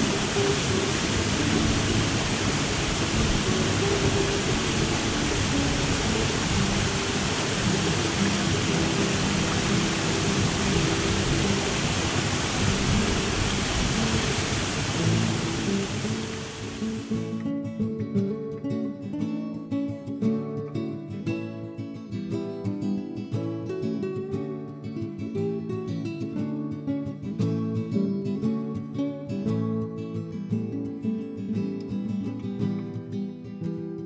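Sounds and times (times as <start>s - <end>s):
waterfall roaring: 0.0s - 17.3s.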